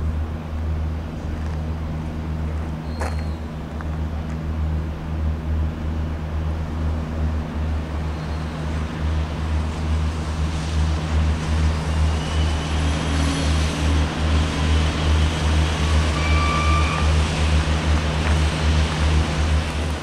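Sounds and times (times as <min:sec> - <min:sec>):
diesel train engines humming: 0:00.0 - 0:20.0
high squeals: 0:15.9 - 0:17.2.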